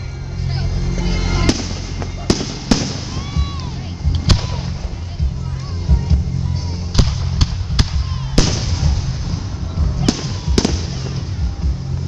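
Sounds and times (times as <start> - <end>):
steady low rumble: 0.0 - 12.0
fireworks bursting with sharp bangs: 1.4 - 5.1, 6.9 - 12.0.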